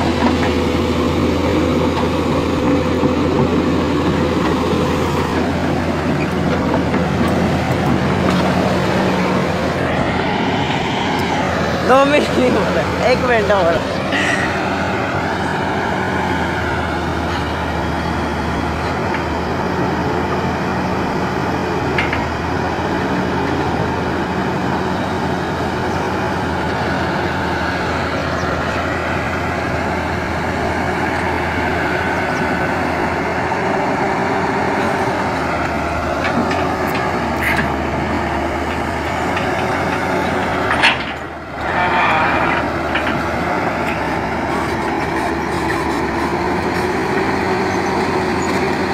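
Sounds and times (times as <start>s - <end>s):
excavator diesel engine running: 0.0s - 48.9s.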